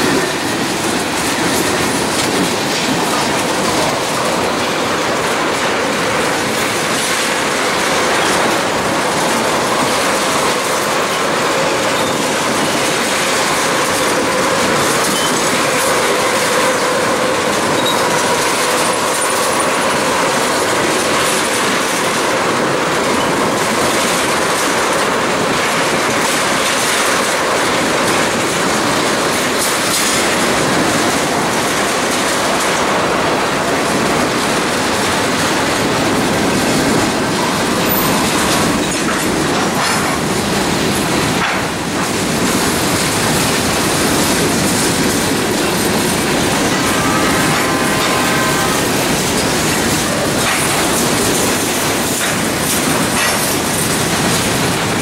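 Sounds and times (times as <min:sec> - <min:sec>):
freight train wheels rumbling on rail: 0:00.0 - 0:55.0
wheel squeal: 0:17.7 - 0:19.3.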